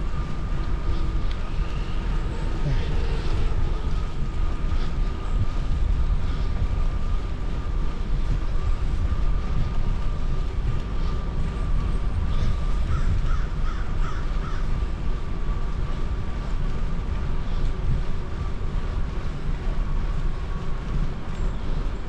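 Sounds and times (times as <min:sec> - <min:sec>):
wind rumble on microphone: 0:00.0 - 0:22.0
crows cawing: 0:12.9 - 0:14.7.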